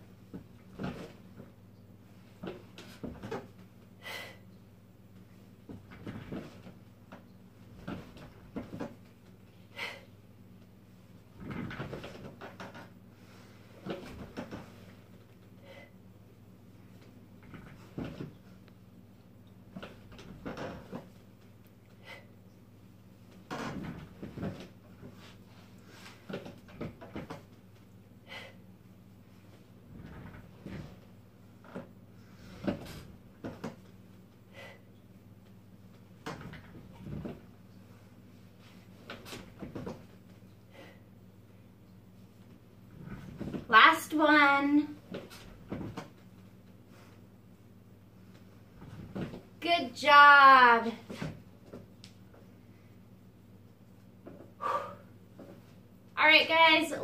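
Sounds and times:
office chair creaking and knocking: 0:00.3 - 0:01.5, 0:02.4 - 0:03.6, 0:05.7 - 0:09.1, 0:11.3 - 0:13.0, 0:13.8 - 0:14.9, 0:17.4 - 0:18.5, 0:19.7 - 0:21.2, 0:23.3 - 0:25.3, 0:26.0 - 0:27.6, 0:29.9 - 0:33.9, 0:36.2 - 0:37.5, 0:38.9 - 0:40.2, 0:42.9 - 0:43.8, 0:44.8 - 0:46.2, 0:48.7 - 0:49.5.

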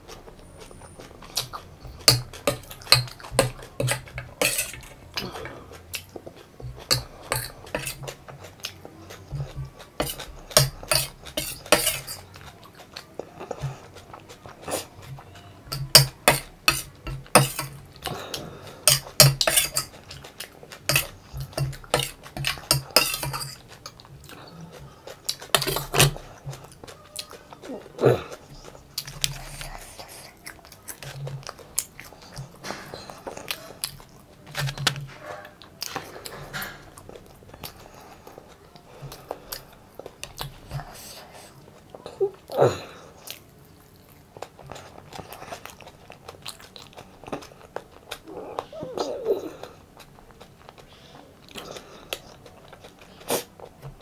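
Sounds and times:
chewing: 0:00.0 - 0:54.0
spoon scraping steel plate: 0:02.0 - 0:05.0, 0:06.8 - 0:08.0, 0:10.0 - 0:12.3, 0:18.9 - 0:19.9.

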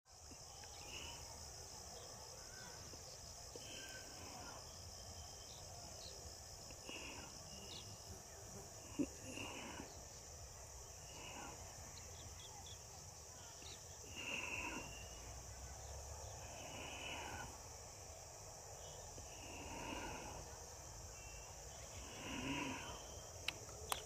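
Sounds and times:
high insect drone: 0:00.1 - 0:24.0
sharp click: 0:23.4 - 0:24.0.

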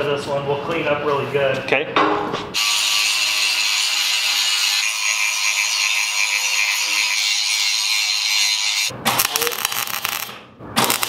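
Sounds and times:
angle grinder grinding steel: 0:02.6 - 0:08.9.

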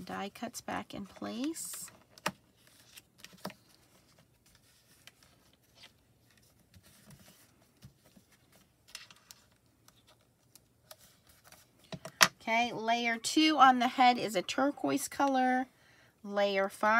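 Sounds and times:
paper rustling: 0:01.0 - 0:11.9.

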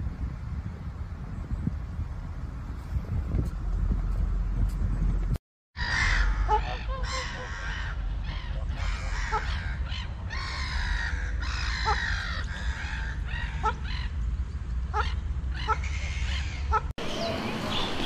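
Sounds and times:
many birds calling: 0:05.8 - 0:18.0.

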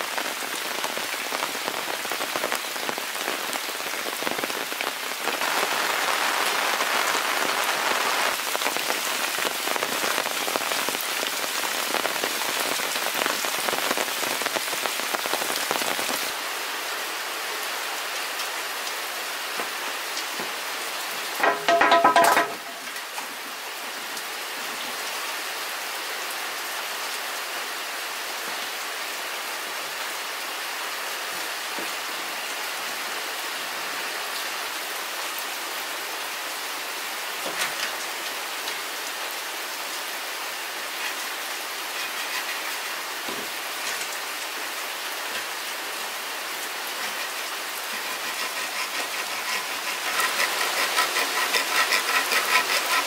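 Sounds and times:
rain falling: 0:00.0 - 0:53.0
drips or knocks: 0:21.4 - 0:22.8
saw cutting bamboo: 0:46.9 - 0:53.0.

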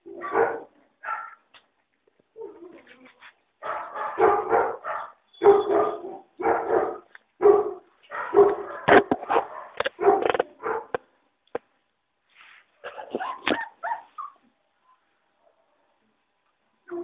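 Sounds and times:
puppies barking and yapping: 0:03.7 - 0:11.0, 0:12.8 - 0:14.5.

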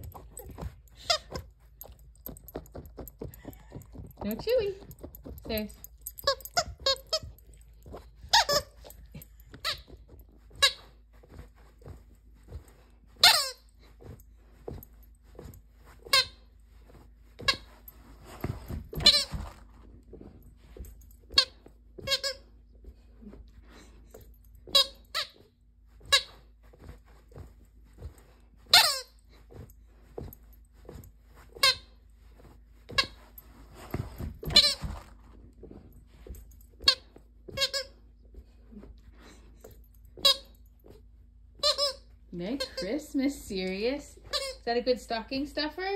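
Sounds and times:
squeaky toy squeaking: 0:06.2 - 0:07.4, 0:08.3 - 0:08.9, 0:10.6 - 0:10.9, 0:13.2 - 0:13.7, 0:18.9 - 0:19.4, 0:21.4 - 0:22.5, 0:24.7 - 0:25.4, 0:28.7 - 0:29.2, 0:34.4 - 0:35.0, 0:36.8 - 0:38.0, 0:40.2 - 0:40.5, 0:41.6 - 0:42.8, 0:44.3 - 0:44.6.

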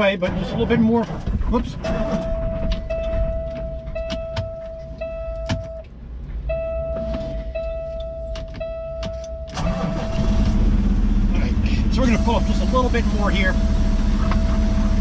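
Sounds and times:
diesel engine idling: 0:09.6 - 0:15.0.

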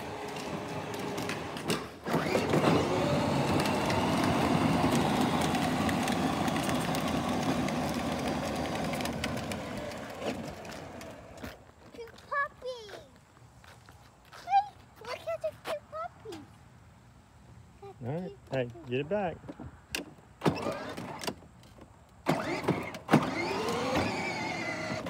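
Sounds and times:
electric motor and gearbox whine: 0:00.0 - 0:11.5, 0:22.2 - 0:25.0
plastic wheels rumbling on concrete: 0:00.0 - 0:13.0, 0:20.4 - 0:25.0.

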